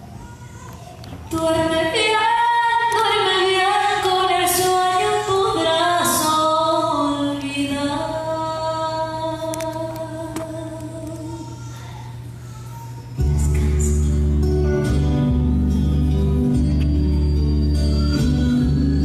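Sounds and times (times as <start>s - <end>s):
woman singing a slow ballad: 1.3s - 11.6s
light musical accompaniment: 13.1s - 19.0s.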